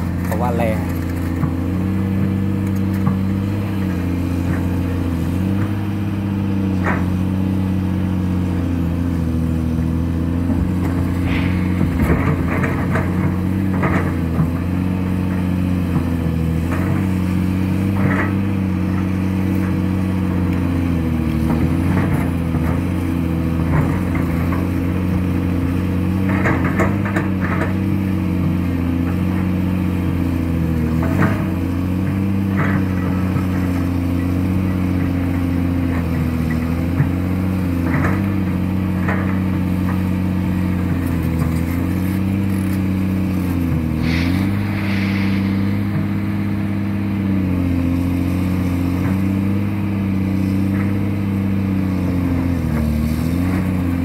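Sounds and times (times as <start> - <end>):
diesel excavator engine under load: 0.0 - 54.0.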